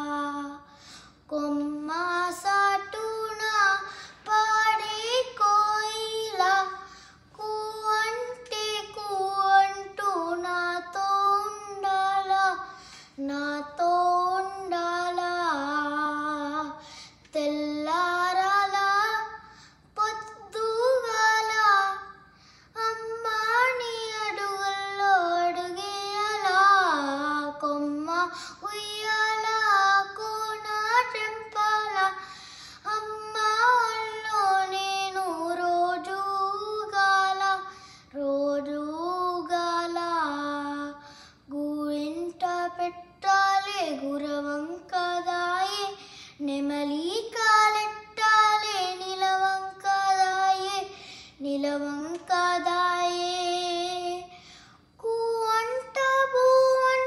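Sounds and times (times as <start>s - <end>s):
boy singing unaccompanied: 55.0s - 57.0s.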